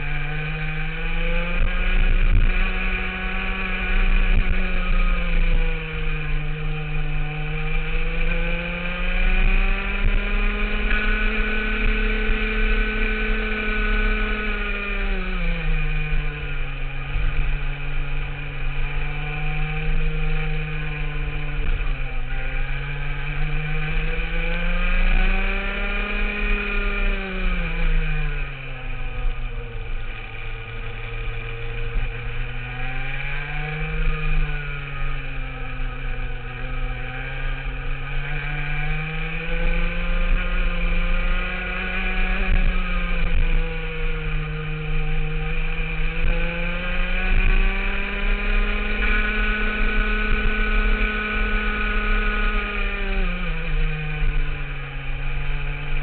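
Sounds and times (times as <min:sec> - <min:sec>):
kart engine revving: 0:00.0 - 0:56.0.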